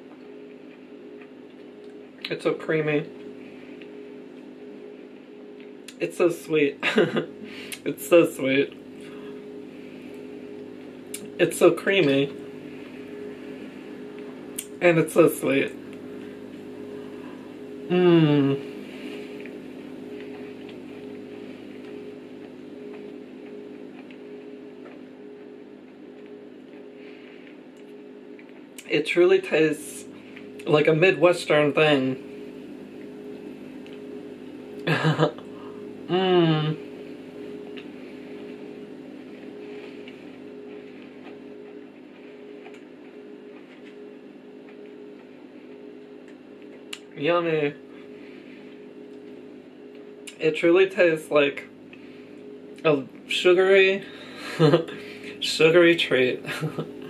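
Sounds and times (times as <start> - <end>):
steady low hum: 0.0 - 57.0
chewing cake: 19.4 - 28.9, 39.4 - 44.0.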